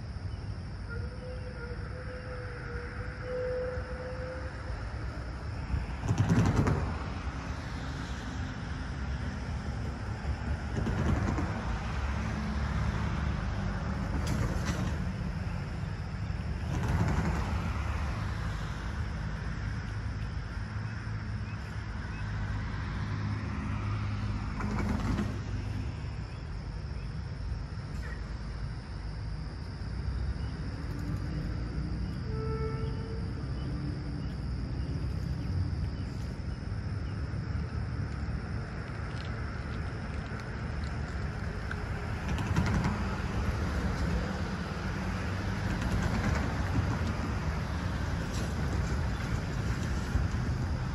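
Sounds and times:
steady low rumble: 33.0 - 50.9.

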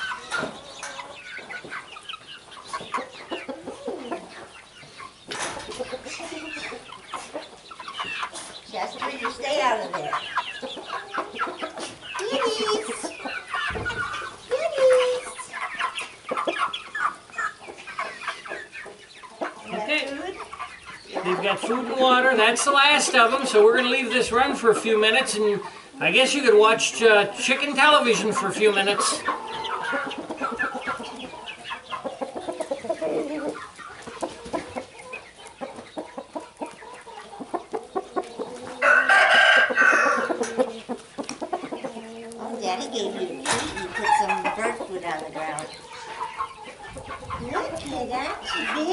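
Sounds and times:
chickens clucking: 0.0 - 48.9
long drawn-out chicken call: 38.5 - 40.7.

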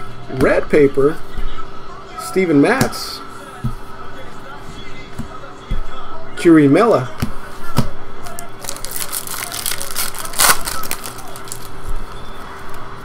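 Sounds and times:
cards shuffling and snapping: 8.2 - 11.8.

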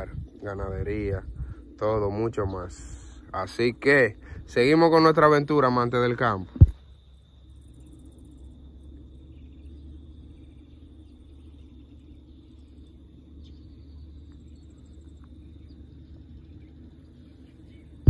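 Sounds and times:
high insect drone: 0.0 - 18.0
low steady rumble: 0.0 - 18.0.

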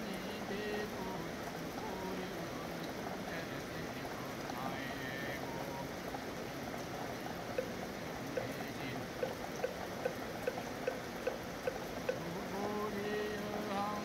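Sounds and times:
steady rain: 0.0 - 14.0
wooden fish knocking: 9.2 - 12.2.

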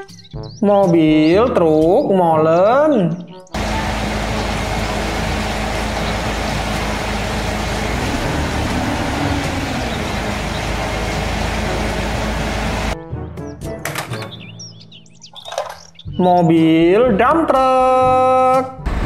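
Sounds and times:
diesel truck engine idling: 3.6 - 13.0.

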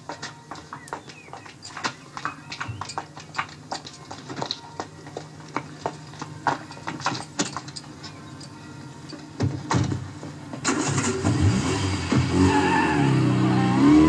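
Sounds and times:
hurried footsteps on concrete: 0.0 - 10.6.

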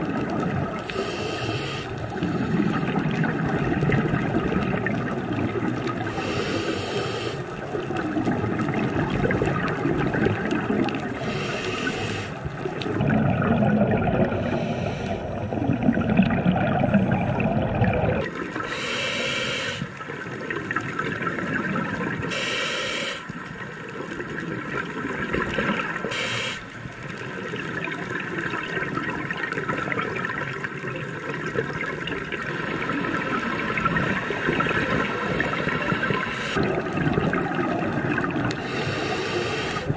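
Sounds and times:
underwater bubbles gurgling: 0.0 - 39.9
short breathing hisses: 0.9 - 1.9, 6.2 - 7.4, 11.2 - 12.4, 18.7 - 19.9, 22.3 - 23.3, 26.1 - 26.7, 38.6 - 39.9.

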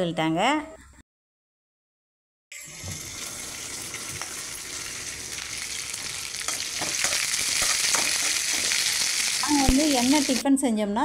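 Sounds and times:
food sizzling in hot oil: 2.6 - 10.4.

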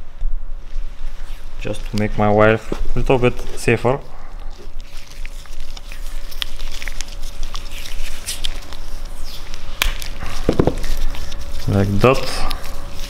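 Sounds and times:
faint steady hum: 0.0 - 13.0
small parts clicking and scratching: 4.4 - 13.0.

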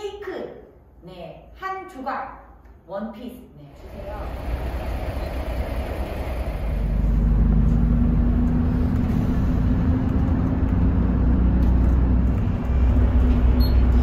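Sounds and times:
steady drone: 3.8 - 13.5
bus engine and tyres rumbling: 3.8 - 14.0.

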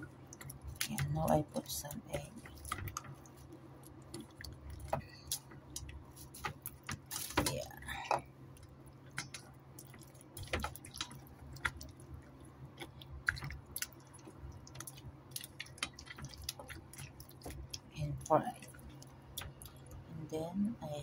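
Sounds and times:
low steady hum: 0.0 - 21.0
hands squishing chicken in egg: 8.6 - 20.1.

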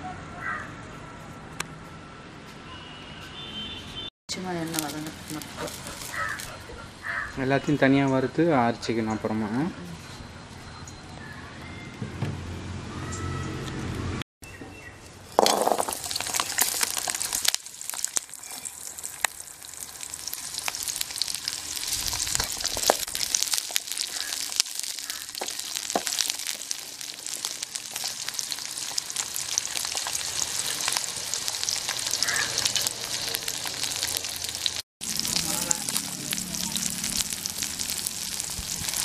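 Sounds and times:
shallots sizzling and crackling in oil: 4.4 - 6.5, 15.3 - 39.0.

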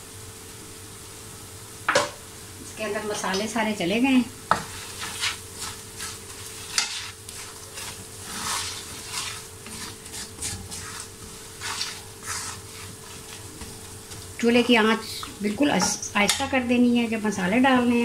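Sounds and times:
oil sizzling: 0.0 - 18.0
spoon scraping metal pan: 4.5 - 13.4.

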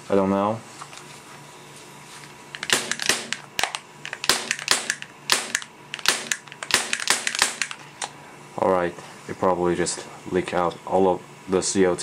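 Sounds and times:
airsoft pistol clicking: 2.6 - 7.8.

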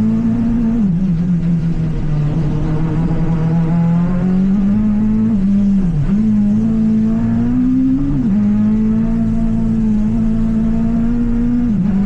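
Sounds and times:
car engine revving hard: 0.0 - 12.0.

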